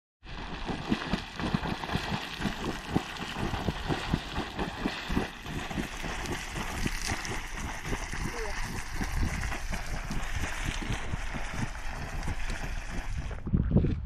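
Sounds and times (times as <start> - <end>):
geyser water spurting and splashing: 0.3 - 13.4.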